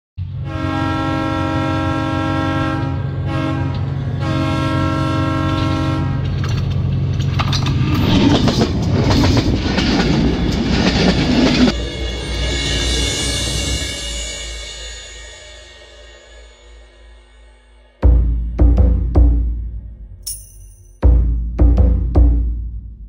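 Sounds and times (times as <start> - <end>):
locomotive horn blasts: 0.4 - 6.6
train wheels clattering on rails: 5.4 - 13.0.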